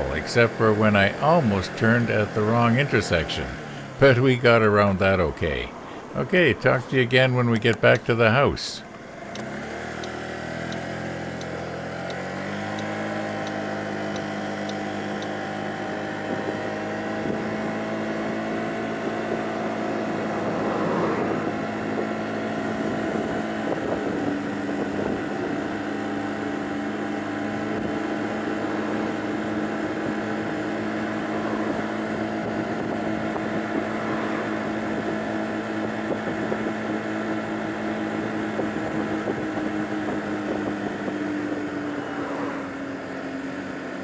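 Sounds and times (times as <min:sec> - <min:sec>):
scooter engine running: 0:00.0 - 0:04.2, 0:08.8 - 0:44.0
wind noise on microphone: 0:16.1 - 0:42.1.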